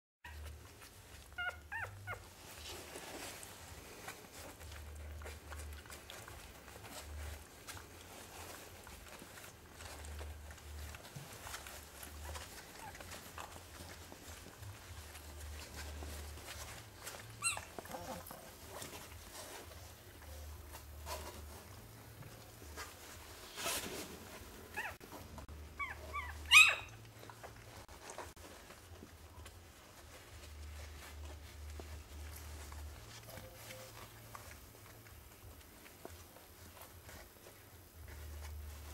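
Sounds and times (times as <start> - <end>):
puppies rustling on bedding: 0.2 - 38.9
puppies whimpering: 0.3 - 2.3, 8.2 - 20.0, 25.7 - 28.2.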